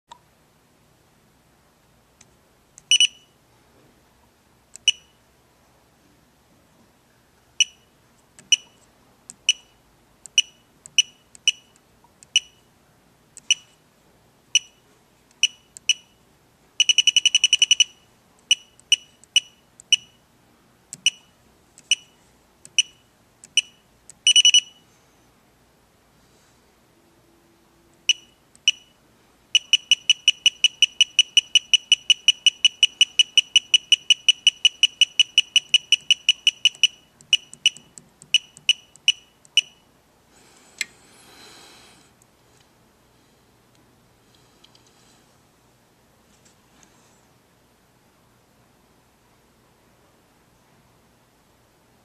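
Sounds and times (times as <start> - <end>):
long electronic beeps: 2.9 - 3.3, 16.8 - 20.2, 23.6 - 24.8, 29.6 - 39.8
short high electronic beeps: 2.9 - 3.3, 16.8 - 20.2, 23.6 - 24.8, 29.6 - 39.8
rapid electronic beeps: 16.8 - 20.1, 23.6 - 24.8, 29.6 - 39.8.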